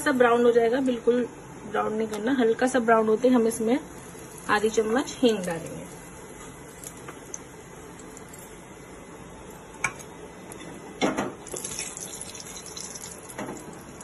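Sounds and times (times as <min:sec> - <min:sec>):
seeds sizzling in hot ghee: 0:01.8 - 0:10.0, 0:11.4 - 0:14.0.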